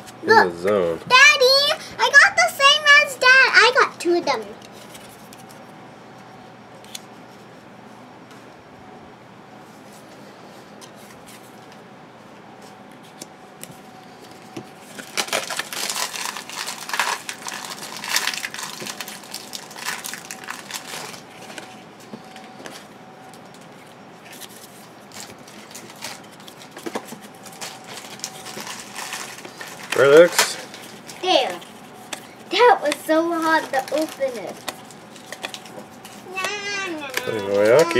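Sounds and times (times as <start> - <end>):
cards rustling and clicking: 12.6 - 37.9
card pack wrapper crinkling: 14.9 - 21.8, 24.3 - 37.9.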